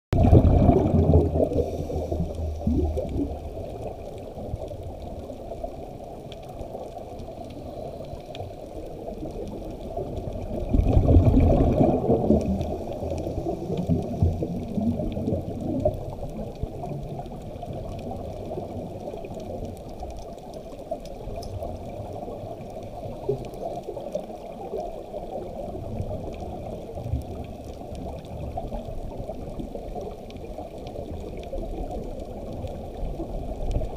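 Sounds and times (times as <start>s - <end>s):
diver's exhaled bubbles: 0.1s - 3.6s, 10.3s - 17.0s
muffled underwater rush: 0.1s - 33.9s.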